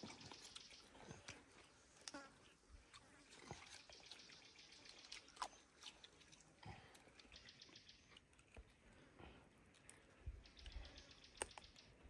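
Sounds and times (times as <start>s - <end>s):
faint small clicks: 9.7s - 11.9s.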